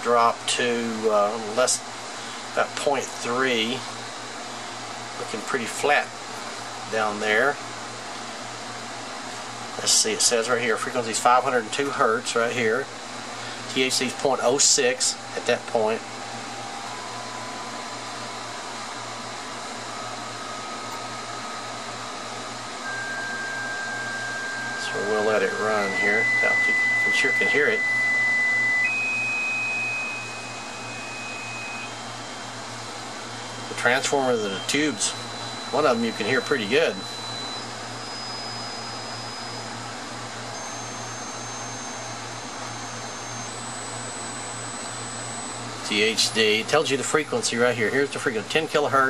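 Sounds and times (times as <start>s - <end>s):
amplifier test tone: 9.8s - 49.0s
low hum: 13.4s - 46.4s.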